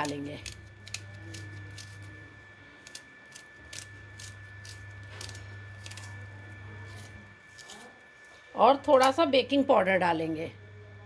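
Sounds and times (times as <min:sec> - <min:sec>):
knife cutting onion: 0:00.0 - 0:02.2, 0:02.8 - 0:08.0
faint steady hum: 0:00.0 - 0:11.0.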